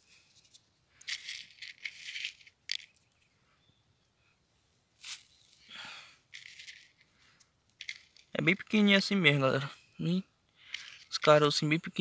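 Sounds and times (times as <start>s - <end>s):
seeds rattling in container: 0.4s - 3.0s, 5.0s - 5.7s, 6.3s - 7.1s, 7.8s - 8.4s, 10.6s - 11.6s.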